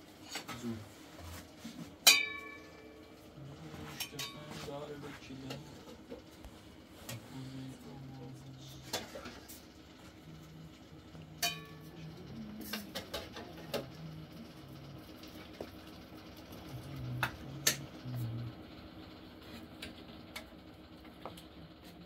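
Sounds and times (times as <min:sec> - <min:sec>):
spoon clinking on steel pot: 0:11.4 - 0:11.9.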